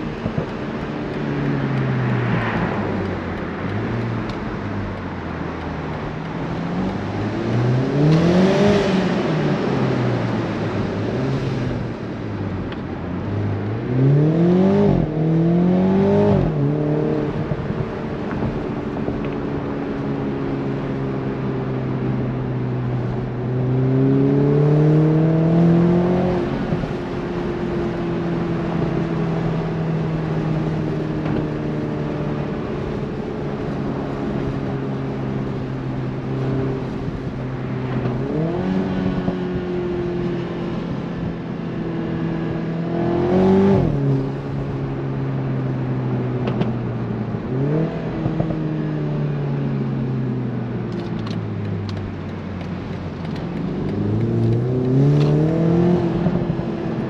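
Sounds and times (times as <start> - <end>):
road noise: 0.0 - 57.0
car engine revving: 51.0 - 57.0.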